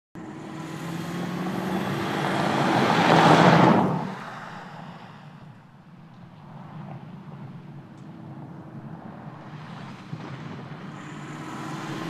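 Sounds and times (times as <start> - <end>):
car engine driving past: 0.2 - 5.5, 6.4 - 12.0
tyres on loose dirt: 6.5 - 12.0.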